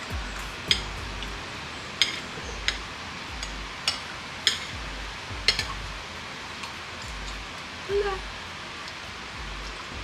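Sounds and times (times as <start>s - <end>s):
faint low pulsing beat: 0.0s - 1.8s, 2.4s - 3.8s, 4.7s - 6.2s, 9.3s - 10.0s
steady hiss: 0.0s - 10.0s.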